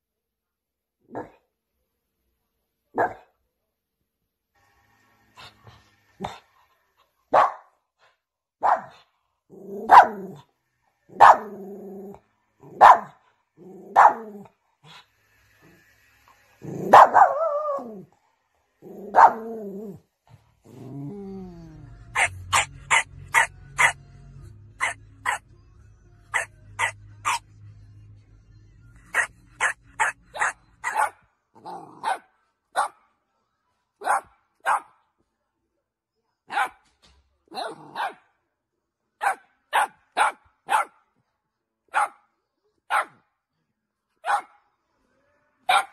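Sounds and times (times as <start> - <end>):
dogs barking: 7.3 - 7.8, 8.6 - 9.0, 9.6 - 10.4, 11.1 - 11.6, 12.6 - 13.2, 13.8 - 14.5, 16.8 - 17.9, 19.0 - 19.6, 22.1 - 24.0, 24.8 - 25.4, 26.3 - 27.4, 29.1 - 31.2, 31.8 - 33.0, 34.0 - 35.0, 36.5 - 36.8, 37.5 - 38.3, 39.2 - 41.0, 41.9 - 42.2, 42.9 - 43.2, 44.2 - 44.6, 45.7 - 45.9
high-pitched yips: 26.3 - 27.4.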